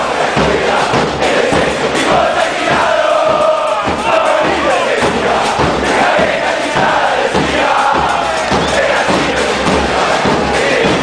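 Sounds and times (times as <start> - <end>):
low drum thumps: 0.0 - 11.0
stadium crowd chanting: 0.0 - 11.0.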